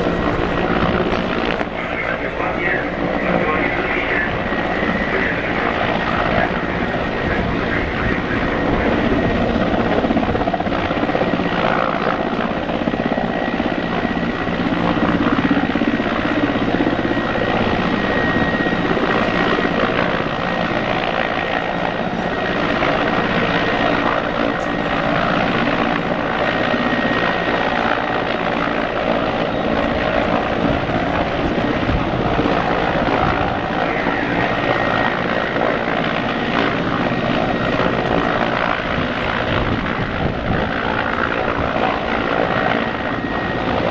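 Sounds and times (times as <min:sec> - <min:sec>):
helicopter rotor and engine noise: 0:00.0 - 0:43.9
high turbine whine: 0:00.0 - 0:43.9.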